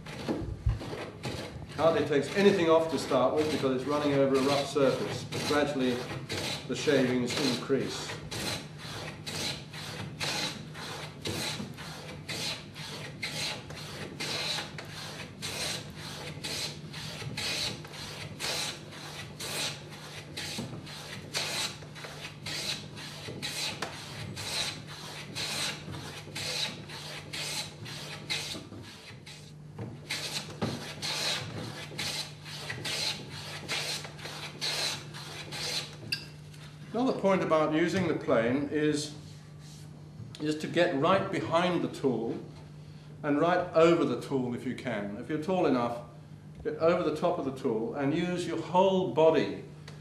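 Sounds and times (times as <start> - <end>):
hand plane rasping on wood: 0.0 - 36.0.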